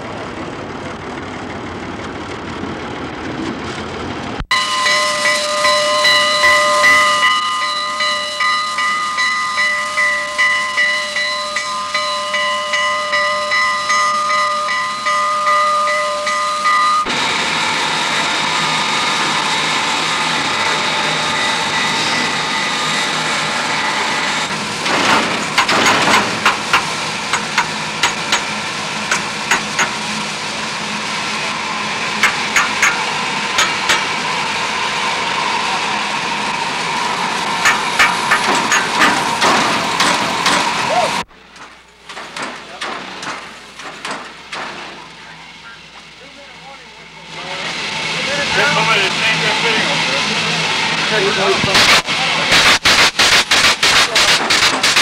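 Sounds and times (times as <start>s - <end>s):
low train rumble: 0.0s - 55.0s
pulsing ringing tone: 4.5s - 17.1s
steam hissing: 16.2s - 41.3s, 42.7s - 55.0s.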